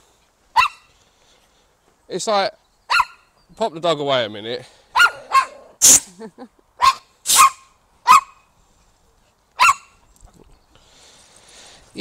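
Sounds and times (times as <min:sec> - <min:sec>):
small dog barking high-pitched: 0:00.5 - 0:00.9, 0:02.9 - 0:03.3, 0:05.0 - 0:05.7, 0:06.8 - 0:08.4, 0:09.6 - 0:10.0.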